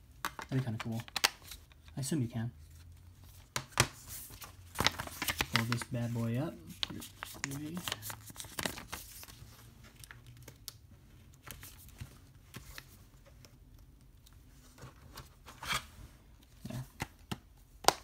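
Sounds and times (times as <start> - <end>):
paper rustling: 3.3 - 10.7.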